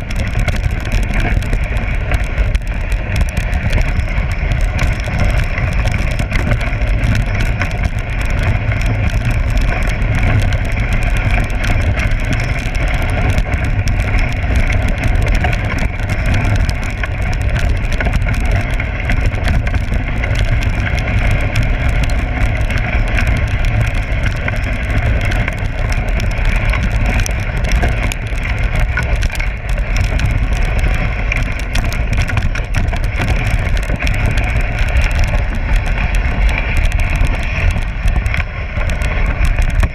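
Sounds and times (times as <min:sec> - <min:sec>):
sled gliding over snow: 0:00.0 - 0:39.9
wind buffeting microphone: 0:00.0 - 0:39.9.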